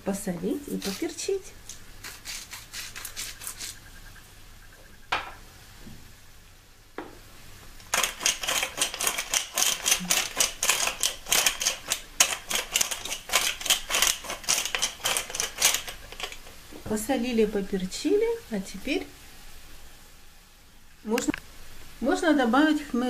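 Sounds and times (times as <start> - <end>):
pepper mill grinding clicks: 7.8 - 16.5.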